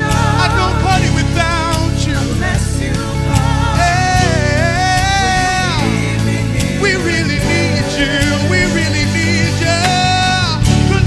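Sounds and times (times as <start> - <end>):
gospel vocal group singing: 0.0 - 11.0
instrumental backing: 0.0 - 11.0.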